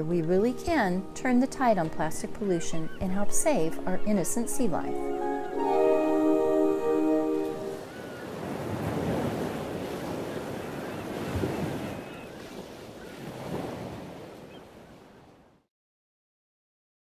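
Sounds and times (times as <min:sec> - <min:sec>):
ocean waves hissing: 0:03.5 - 0:14.4.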